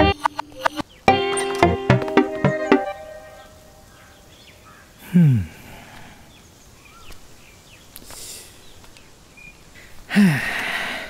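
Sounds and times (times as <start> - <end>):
man sighing: 5.0 - 6.2, 10.1 - 11.0.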